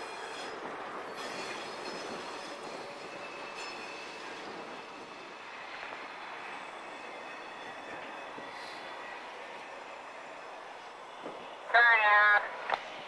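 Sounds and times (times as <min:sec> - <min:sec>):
wheel flanges squealing: 0:00.0 - 0:05.4
train rolling noise: 0:00.0 - 0:13.0.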